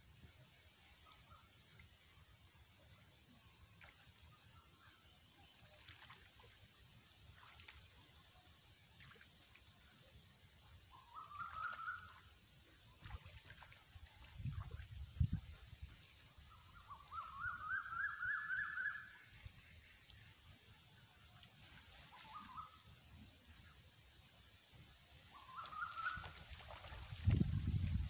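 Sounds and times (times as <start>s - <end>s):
pond water sloshing: 0.6s - 17.2s, 19.0s - 24.0s, 25.3s - 28.0s
bird warbling call: 10.9s - 12.3s, 16.7s - 19.3s, 22.1s - 22.9s, 25.3s - 26.9s.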